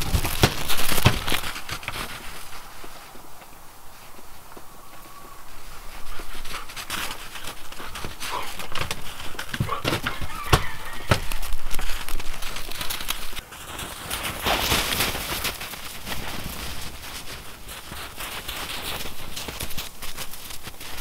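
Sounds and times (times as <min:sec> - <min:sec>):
dogs moving about: 0:00.0 - 0:03.0, 0:04.6 - 0:21.0
dogs panting: 0:04.6 - 0:12.8.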